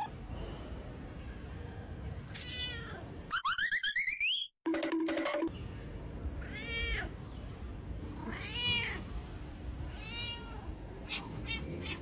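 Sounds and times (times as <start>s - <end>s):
cat meowing: 6.4s - 7.1s, 8.2s - 9.0s, 9.9s - 12.0s.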